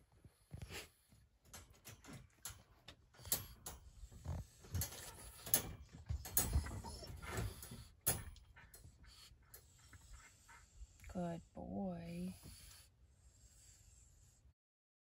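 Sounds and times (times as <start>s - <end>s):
wire crate clicks and rattles: 4.7s - 8.7s.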